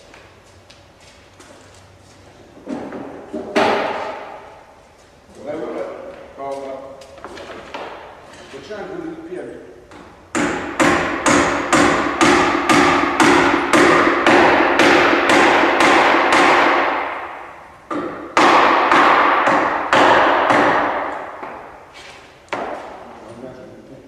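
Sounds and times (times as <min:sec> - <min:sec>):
hammer blows on heavy timber: 0:03.3 - 0:04.5, 0:10.3 - 0:21.8.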